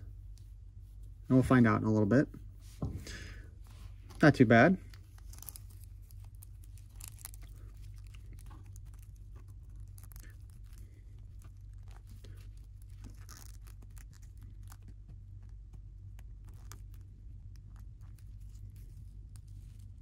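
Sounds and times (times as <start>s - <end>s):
steady hum: 0.0s - 20.0s
plastic parts clicking and rubbing: 4.0s - 20.0s.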